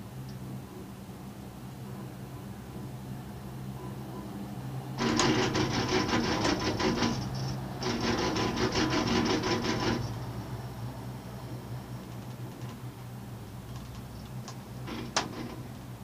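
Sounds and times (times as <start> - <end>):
cable car wheels clattering: 5.0 - 10.5, 13.7 - 16.0.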